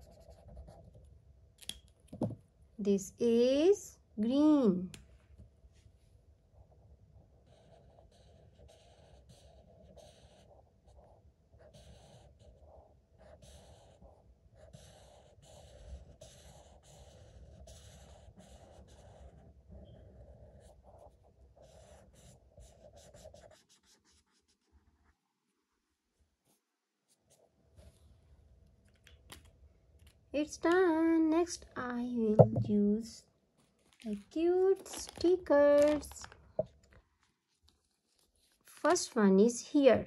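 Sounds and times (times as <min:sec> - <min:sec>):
marker scribbling on paper: 0:00.0 - 0:01.0, 0:07.3 - 0:25.2.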